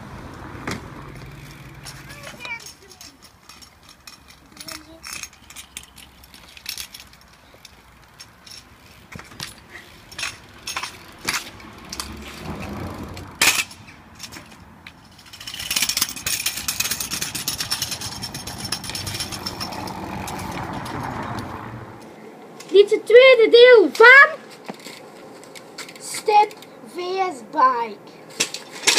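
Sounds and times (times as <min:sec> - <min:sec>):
small wheels rattling over paving: 0:00.1 - 0:21.8, 0:28.3 - 0:28.9
scooters knocking on paving stones: 0:00.3 - 0:22.8, 0:23.9 - 0:26.7.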